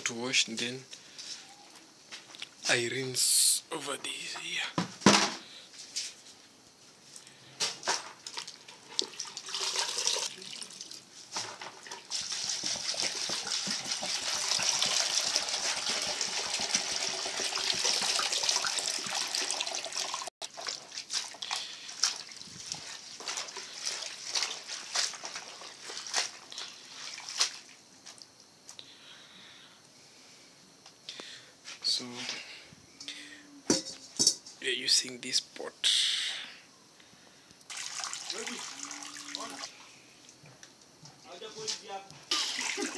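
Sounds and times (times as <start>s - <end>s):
water pouring into a basin: 8.3s - 11.1s, 11.8s - 27.4s, 37.7s - 39.8s, 42.3s - 42.9s.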